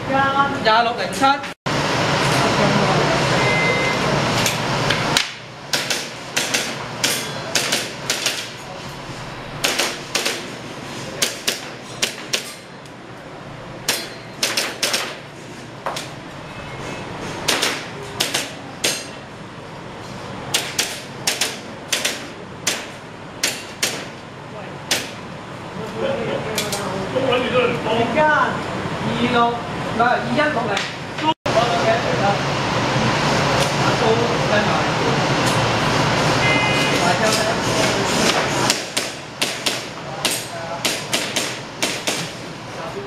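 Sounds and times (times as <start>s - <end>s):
short electronic beep: 3.3s - 4.1s, 36.4s - 37.0s
loud noise: 31.5s - 38.6s.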